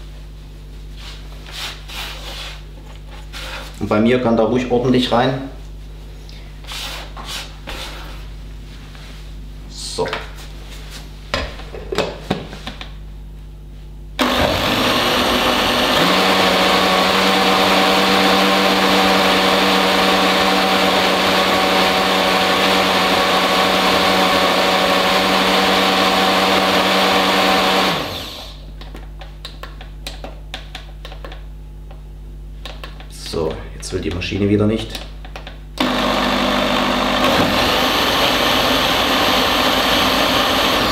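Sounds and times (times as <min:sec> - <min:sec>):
blender running: 0:14.2 - 0:28.6, 0:35.8 - 0:40.9.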